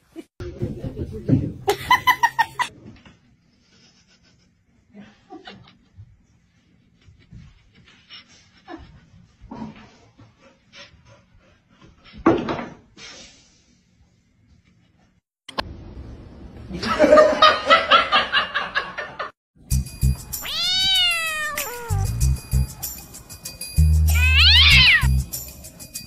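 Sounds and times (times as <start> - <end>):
music: 19.6 - 26.0
cat meowing: 20.4 - 22.2, 24.1 - 25.1.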